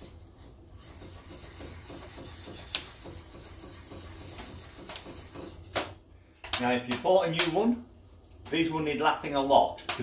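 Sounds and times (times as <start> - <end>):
blade scraping on sharpening stone: 0.8 - 5.7.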